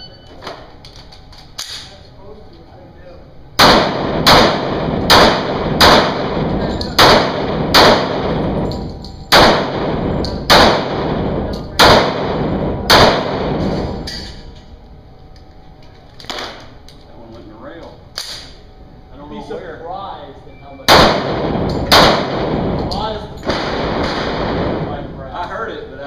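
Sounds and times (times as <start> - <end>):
pistol shots indoors: 3.6 - 14.6, 16.2 - 16.7, 20.9 - 25.1.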